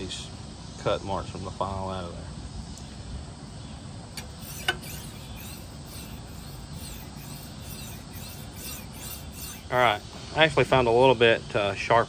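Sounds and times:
file scraping steel blade: 0:04.2 - 0:10.9.

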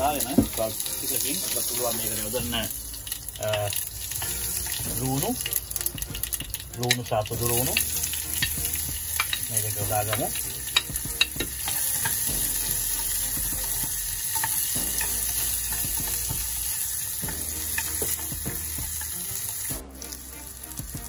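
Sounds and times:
onion sizzling in oil: 0:00.0 - 0:21.0
wooden spoon scraping and tapping pan: 0:03.5 - 0:12.3, 0:13.5 - 0:16.6, 0:17.3 - 0:19.2.

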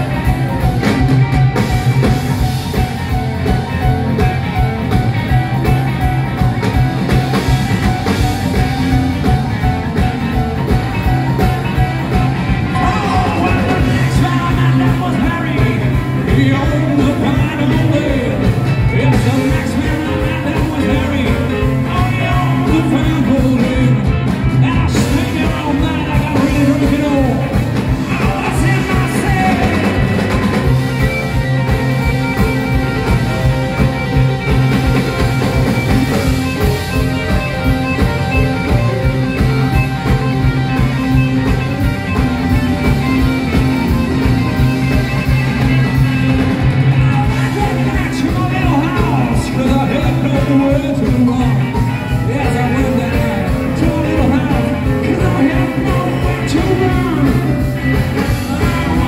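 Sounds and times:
blues-rock band playing: 0:00.0 - 0:59.0
lead vocals: 0:11.8 - 0:31.3, 0:46.4 - 0:59.0.

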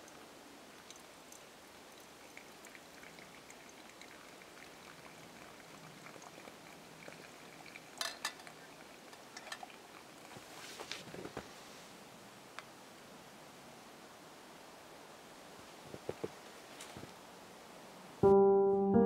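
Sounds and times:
water trickling into coffee dripper: 0:00.0 - 0:10.8.

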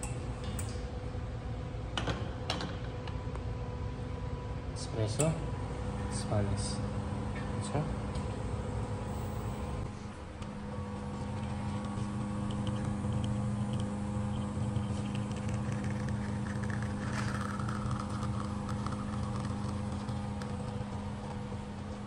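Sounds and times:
espresso machine pump humming: 0:03.9 - 0:22.0
espresso streaming into a cup: 0:10.7 - 0:22.0.

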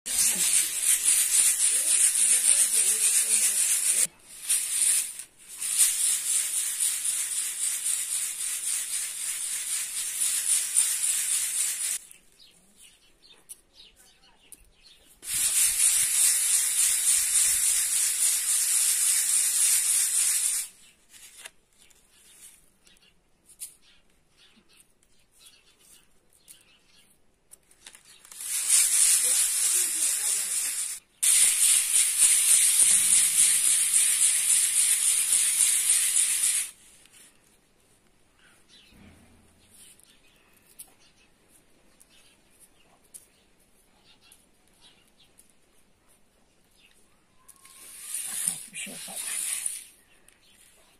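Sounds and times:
grain swishing in a sieve: 0:00.1 - 0:12.1, 0:15.2 - 0:21.5, 0:27.8 - 0:37.2, 0:47.6 - 0:50.8.

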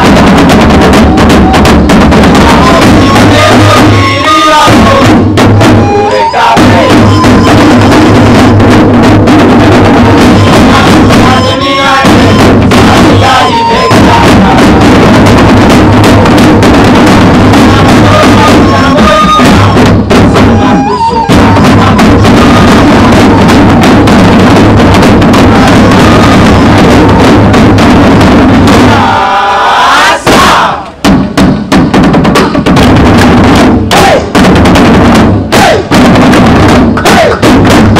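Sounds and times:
hand drums beaten loudly: 0:00.0 - 0:29.4, 0:30.0 - 0:37.9.

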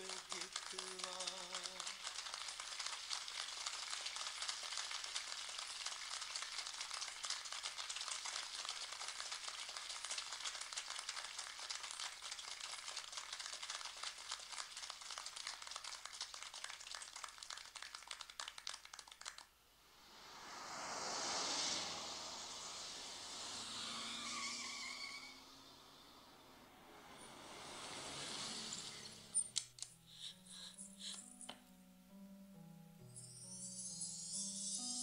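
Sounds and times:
dense crackling hiss: 0:00.0 - 0:29.4
rising hiss: 0:19.8 - 0:29.4.

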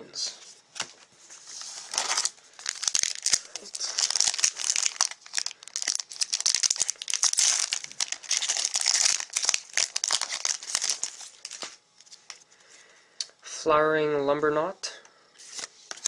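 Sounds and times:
foil wrapper crinkling and tearing: 0:01.6 - 0:12.4, 0:15.5 - 0:16.0.

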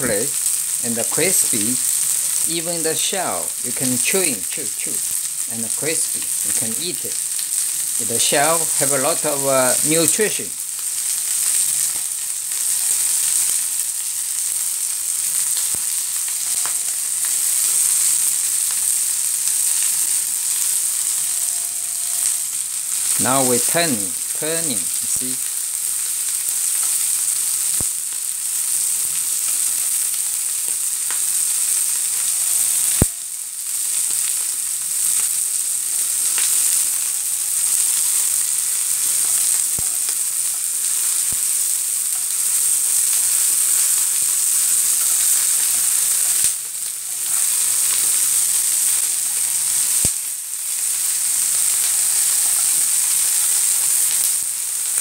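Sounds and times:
prawns sizzling in hot oil: 0:00.0 - 0:55.0.

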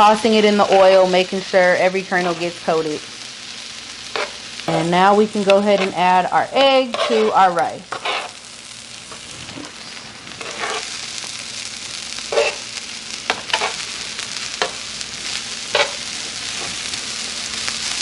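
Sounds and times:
rice sizzling on a griddle: 0:00.0 - 0:18.0
tongs scraping griddle: 0:00.3 - 0:01.2, 0:03.8 - 0:08.5, 0:10.3 - 0:17.9.

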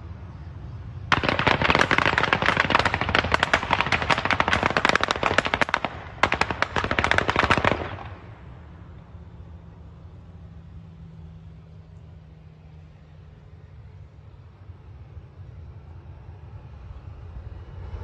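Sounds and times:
rapid automatic gunfire: 0:01.1 - 0:08.2.

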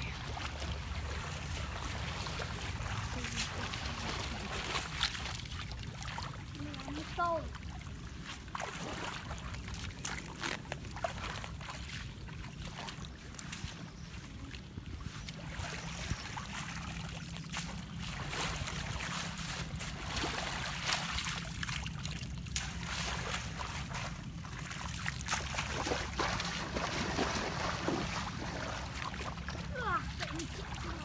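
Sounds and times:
muddy water splashing: 0:00.0 - 0:31.0
wind rumbling on microphone: 0:07.9 - 0:31.0.

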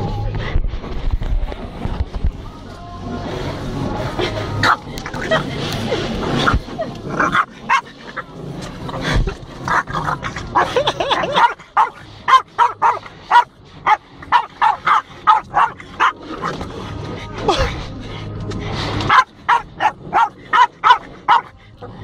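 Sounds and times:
dog barking: 0:11.3 - 0:16.2, 0:19.1 - 0:21.5.

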